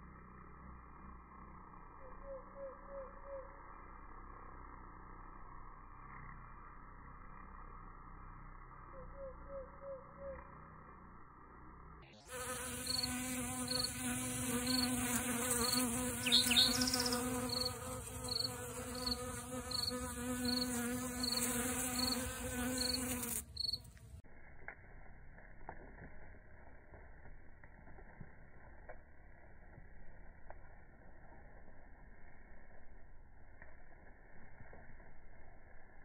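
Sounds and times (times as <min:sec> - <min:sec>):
cricket chirping: 0:00.0 - 0:23.9
bees buzzing: 0:12.2 - 0:24.0.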